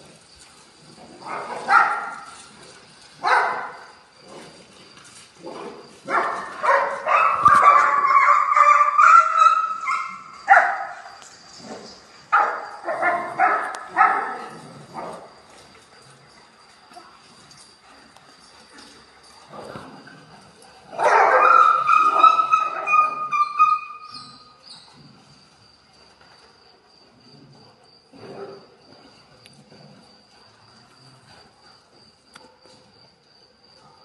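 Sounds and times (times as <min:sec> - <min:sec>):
dogs barking: 0:01.2 - 0:02.4, 0:03.2 - 0:04.0, 0:05.5 - 0:11.2, 0:12.3 - 0:15.4, 0:20.8 - 0:24.2.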